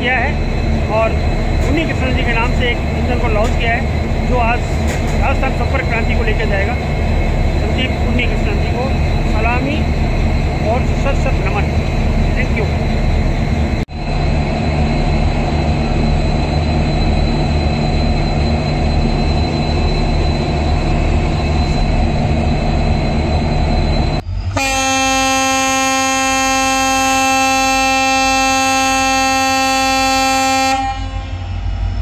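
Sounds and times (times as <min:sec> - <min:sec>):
diesel locomotive idling: 0:00.0 - 0:32.0
locomotive air horn blast: 0:24.5 - 0:31.5.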